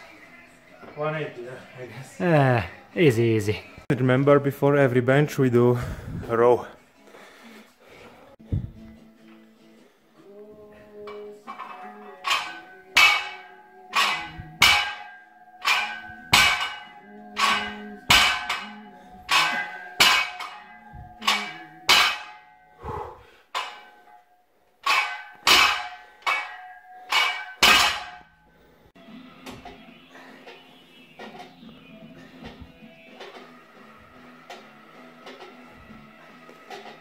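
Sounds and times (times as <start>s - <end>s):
barbell plates clanking: 11.0s - 28.4s, 32.4s - 37.0s.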